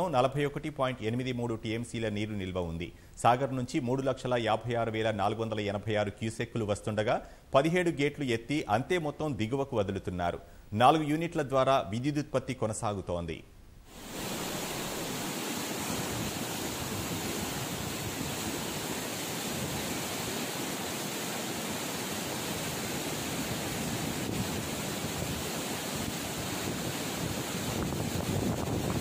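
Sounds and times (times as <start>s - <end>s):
water rushing through spillway: 13.9s - 29.0s.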